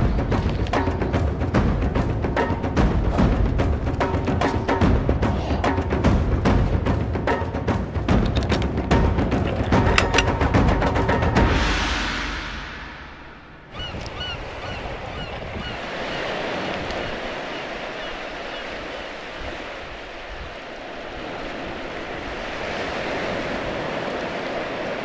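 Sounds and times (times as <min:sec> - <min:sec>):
surf breaking on beach: 0:11.5 - 0:25.0.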